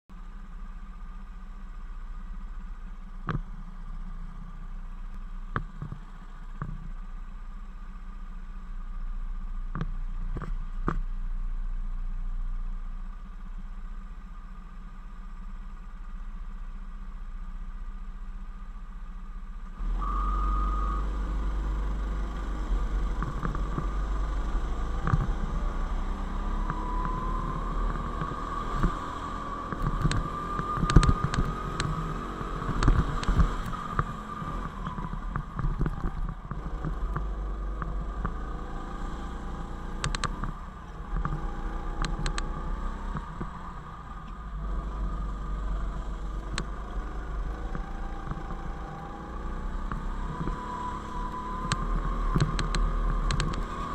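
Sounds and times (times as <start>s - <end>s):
sharp clicks and knocks: 5.5s - 6.9s, 23.1s - 24.0s, 24.9s - 25.4s, 27.9s - 38.5s, 40.0s - 43.6s, 49.8s - 53.9s
kart engine whine accelerating: 19.8s - 53.9s.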